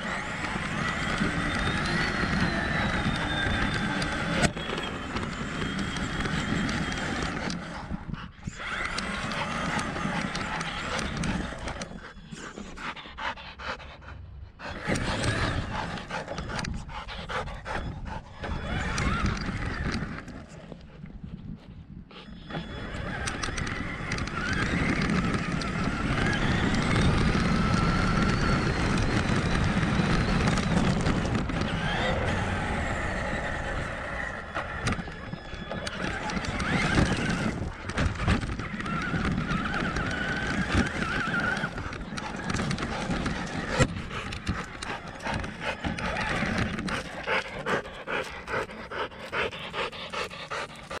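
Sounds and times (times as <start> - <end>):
electric motor and gear whine: 0.0 - 51.0.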